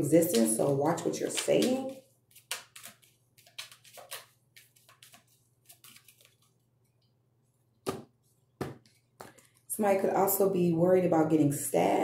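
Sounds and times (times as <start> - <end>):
cards being shuffled: 0.3 - 6.6.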